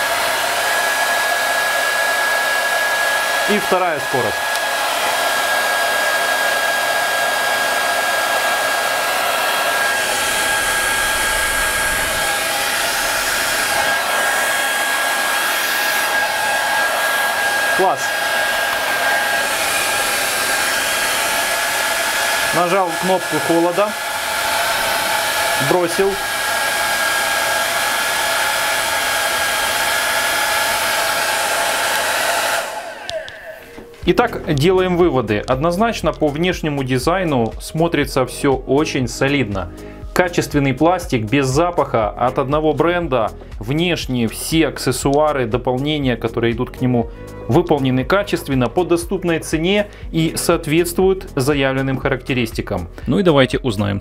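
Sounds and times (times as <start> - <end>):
hair dryer running: 0.0 - 35.6.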